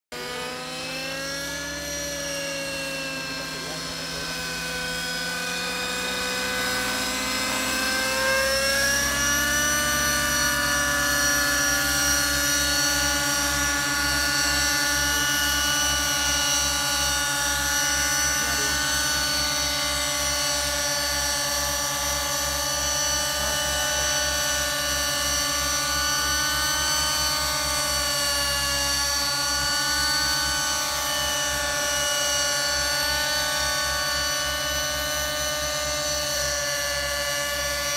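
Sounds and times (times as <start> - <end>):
fast low flutter: 0.1 - 37.9
model helicopters whining: 0.1 - 37.9.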